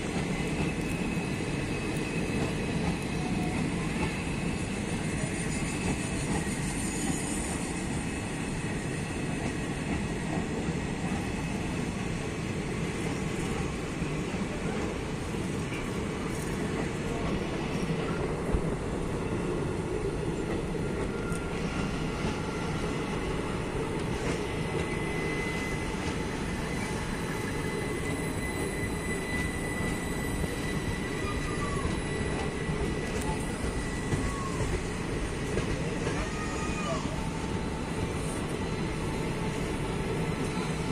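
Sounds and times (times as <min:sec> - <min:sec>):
train wheels rumbling on rails: 0:00.0 - 0:40.9
high-pitched squeal: 0:24.6 - 0:40.9.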